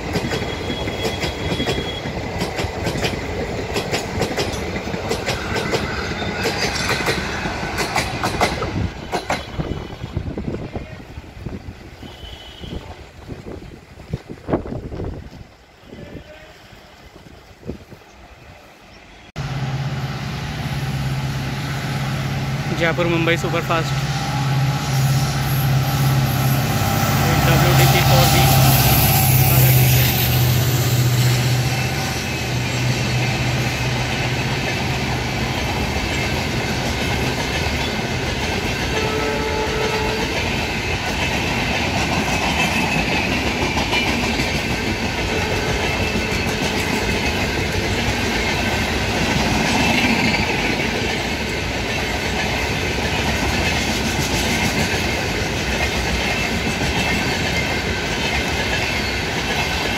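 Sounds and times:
wheels clattering over rail joints: 0.0s - 9.7s
diesel locomotive engine drone: 0.0s - 59.9s
train coaches rumbling past: 0.0s - 59.9s.

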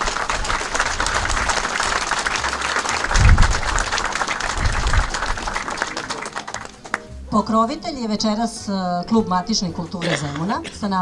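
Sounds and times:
audience applauding: 0.0s - 7.1s
low thumps: 3.1s - 3.9s.

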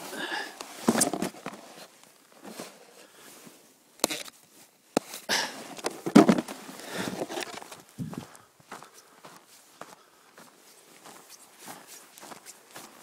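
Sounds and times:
snow crunching under boots and board: 0.0s - 13.0s
snowboard handling noise: 0.5s - 8.2s.

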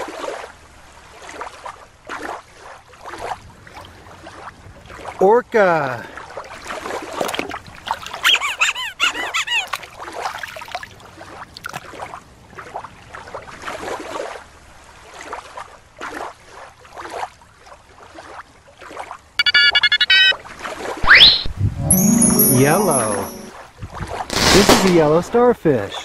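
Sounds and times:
water sloshing and splashing: 0.0s - 5.2s, 6.1s - 8.6s, 9.6s - 19.4s
high warbling whistle-squeal: 21.1s - 23.5s
bell-like chime: 21.8s - 23.5s.

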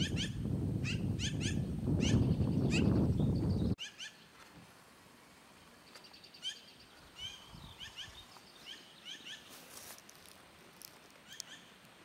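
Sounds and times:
magpies chirping: 0.0s - 3.0s, 3.6s - 4.3s, 5.9s - 9.6s, 11.2s - 11.8s
harsh rasping bird calls: 3.8s - 4.3s, 6.0s - 9.6s, 11.2s - 11.8s.

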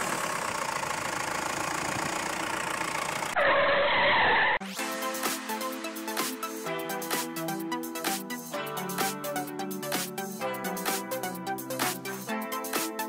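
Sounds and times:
electronic music: 4.6s - 13.0s.

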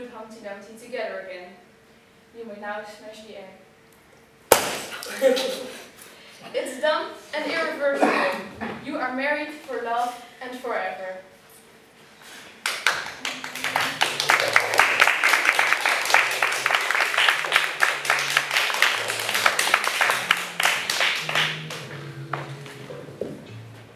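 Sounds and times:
audience applauding: 12.6s - 23.9s
music with held low notes: 15.7s - 23.9s.

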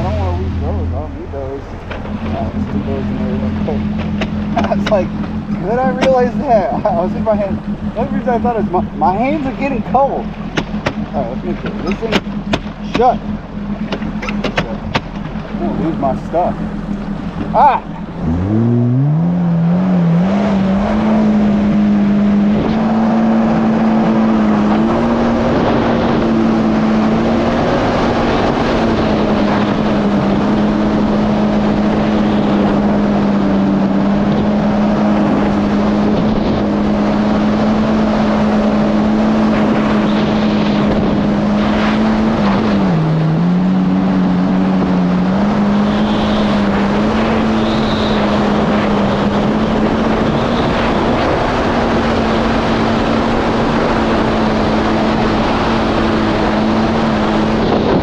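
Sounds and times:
jet ski engine running: 0.0s - 58.0s
rush of wind and water: 17.0s - 58.0s.

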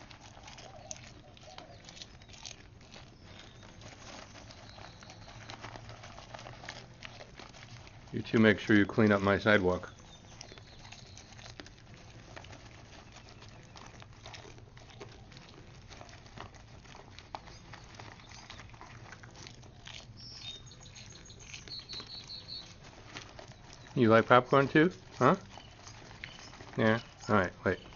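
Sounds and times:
deer crunching popcorn: 0.0s - 27.9s
paper bag rustling: 2.6s - 20.7s, 21.8s - 27.9s
high chirps: 20.2s - 22.8s.

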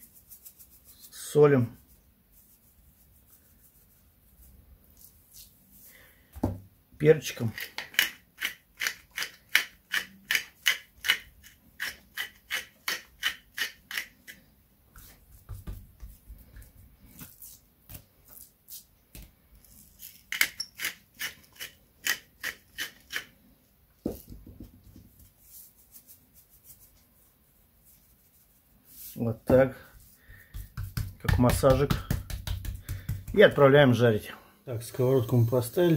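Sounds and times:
pepper mill grinding: 7.5s - 14.4s, 19.6s - 23.3s
meat handled on wooden board: 29.4s - 33.7s.

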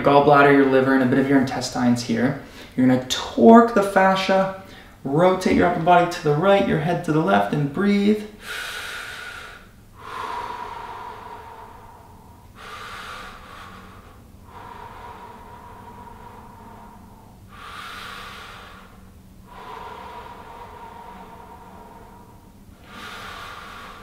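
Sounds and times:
man breathing deeply: 2.4s - 2.8s, 4.6s - 5.0s, 8.3s - 24.0s.

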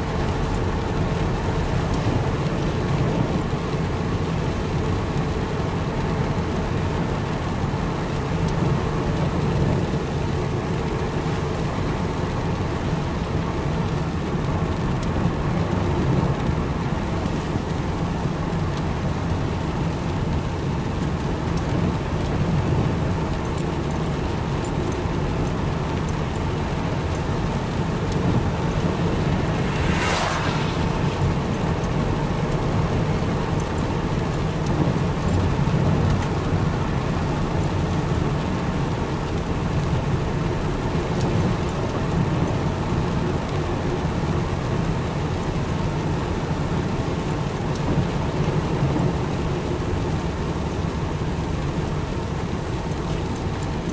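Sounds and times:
car engine rumble: 0.0s - 53.9s
raindrops ticking on car: 0.0s - 53.9s
tyres on wet road: 0.0s - 53.9s
windscreen wiper swish: 23.8s - 53.9s.

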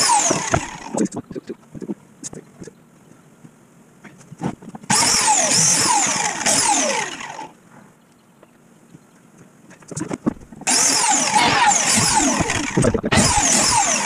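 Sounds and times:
biscuit joiner whine: 0.0s - 1.2s, 4.9s - 7.5s, 10.6s - 14.0s.

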